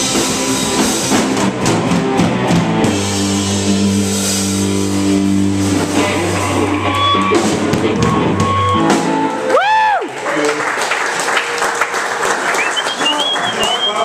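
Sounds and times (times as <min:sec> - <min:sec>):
rock band final chord: 0:00.0 - 0:09.4.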